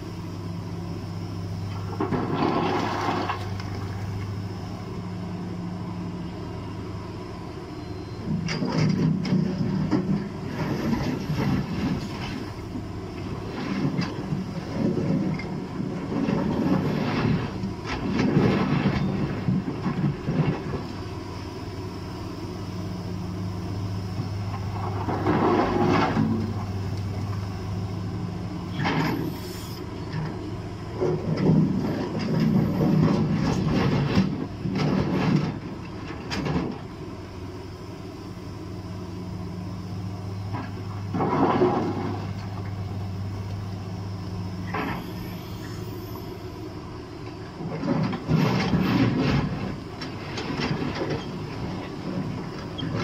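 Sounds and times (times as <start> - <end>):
excavator diesel engine humming: 0.0 - 53.0
rocks clattering from bucket: 2.0 - 3.8.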